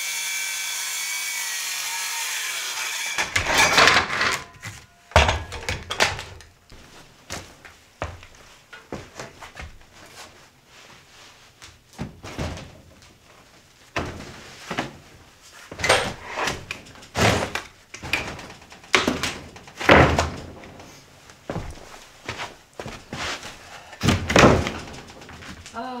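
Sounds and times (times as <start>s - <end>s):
wooden thuds and knocks: 17.2s - 20.8s, 24.0s - 25.7s.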